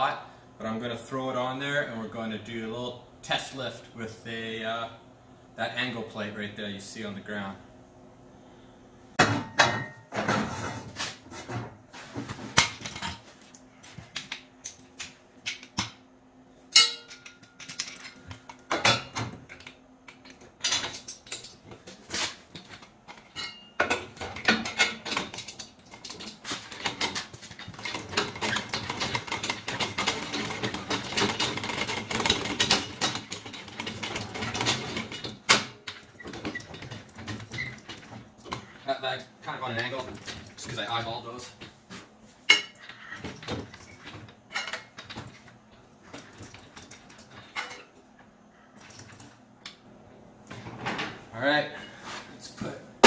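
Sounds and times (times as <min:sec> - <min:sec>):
steel parts clanking on concrete: 0:16.7 - 0:38.7
rapid metal clicking and rattling: 0:24.2 - 0:38.5.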